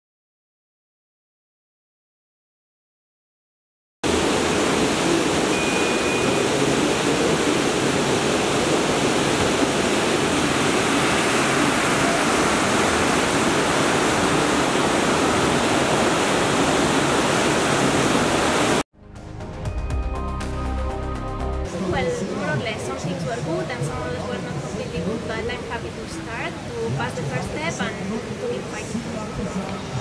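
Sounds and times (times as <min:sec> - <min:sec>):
whitewater rushing: 0:04.1 - 0:18.8.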